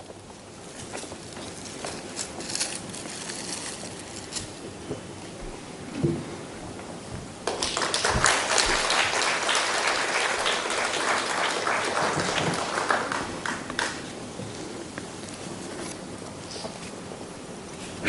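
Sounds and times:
audience applauding: 7.4s - 14.3s.

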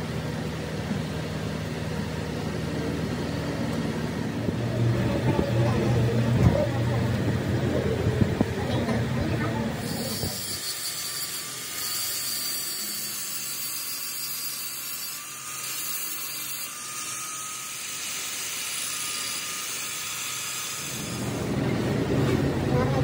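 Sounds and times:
angle grinder grinding steel: 9.4s - 21.7s.

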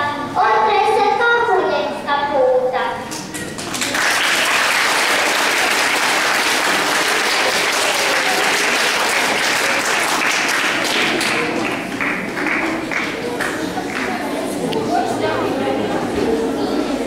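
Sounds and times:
audience applause: 3.4s - 14.4s.

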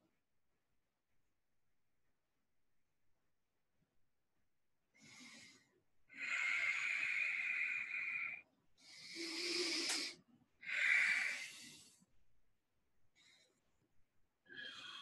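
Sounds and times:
man breathing deeply: 5.0s - 12.1s.

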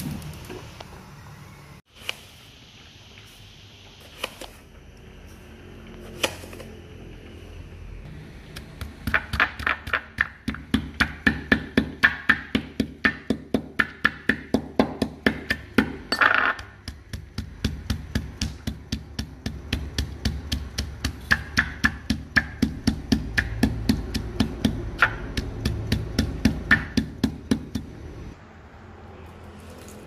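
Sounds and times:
rhythmic knocking: 8.4s - 28.0s.

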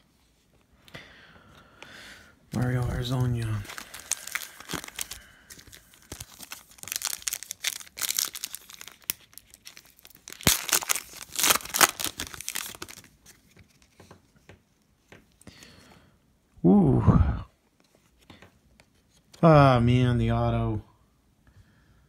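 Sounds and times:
foil wrapper tearing and crinkling: 2.6s - 13.4s.

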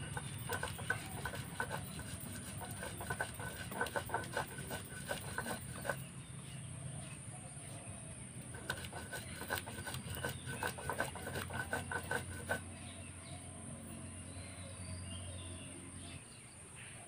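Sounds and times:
stone grinding on grinding stone: 0.0s - 6.1s, 8.5s - 12.7s.

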